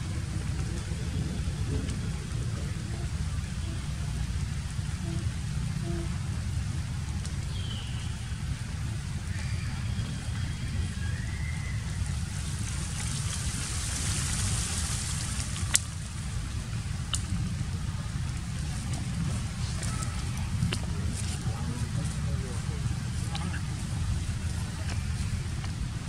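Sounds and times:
low rumble and hiss: 0.0 - 26.0
faint chirps: 7.0 - 16.1.

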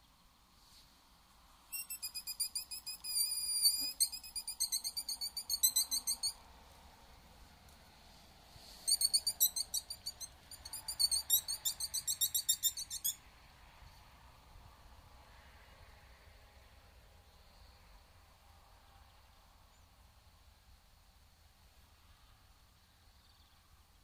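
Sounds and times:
fox call high squeaks: 1.7 - 6.4, 8.8 - 13.2.

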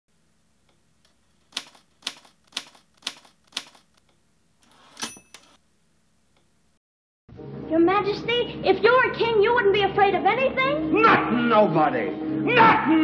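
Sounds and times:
typewriter carriage return sliding: 1.4 - 4.0, 4.6 - 5.6
typewriter key strikes: 1.5 - 4.0, 5.0 - 5.6
typewriter bell ringing: 4.9 - 5.6.

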